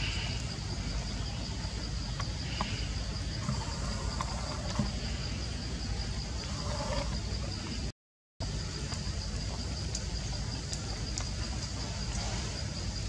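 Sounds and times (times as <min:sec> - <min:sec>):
insects droning: 0:00.0 - 0:13.0.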